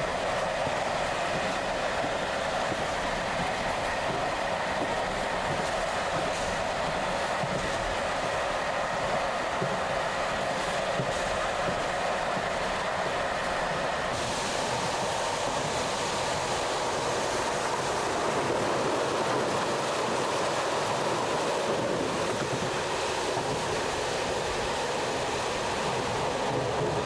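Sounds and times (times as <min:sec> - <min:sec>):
passenger train running: 0:00.0 - 0:27.0.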